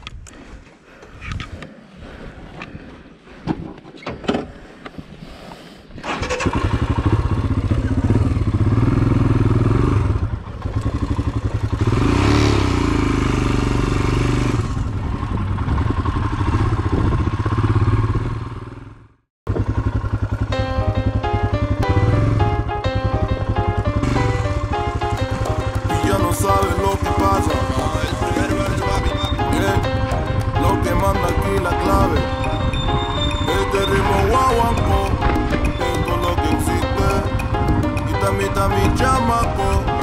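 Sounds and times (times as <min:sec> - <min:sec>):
motorcycle engine under load: 0:06.0 - 0:40.0
music: 0:20.5 - 0:40.0.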